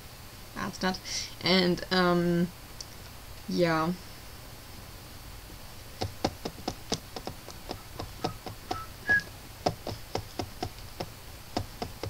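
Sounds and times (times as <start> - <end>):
short faint beeps: 8.2 - 9.3.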